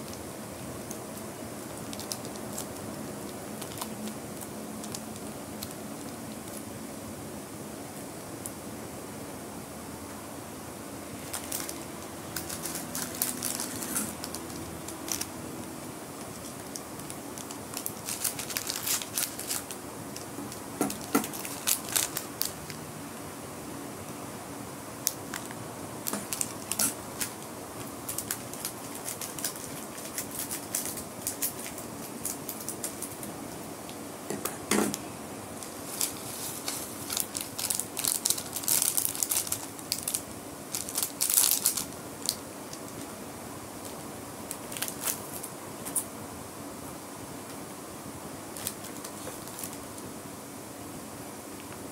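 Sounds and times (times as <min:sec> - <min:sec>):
foil sachets crinkling: 0:00.0 - 0:06.6, 0:11.2 - 0:22.7, 0:25.0 - 0:33.3, 0:35.6 - 0:43.1, 0:43.8 - 0:45.5, 0:48.5 - 0:50.0.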